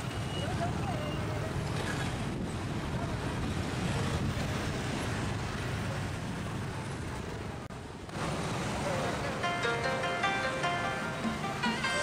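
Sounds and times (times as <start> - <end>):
wind rumbling on microphone: 0.0 - 8.3
cars passing: 0.0 - 12.0.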